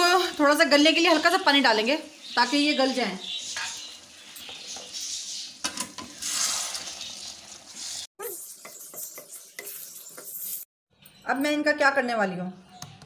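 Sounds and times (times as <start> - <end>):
curry sizzling in a pan: 0.0 - 10.7
spatula scraping a pan: 3.4 - 10.7.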